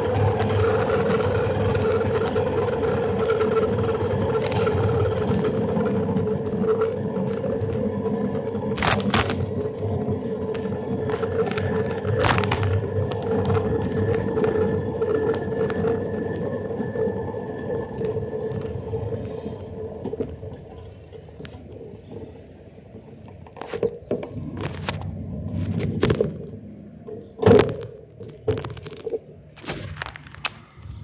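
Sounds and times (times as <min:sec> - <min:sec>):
small engine whining: 0:00.0 - 0:23.0.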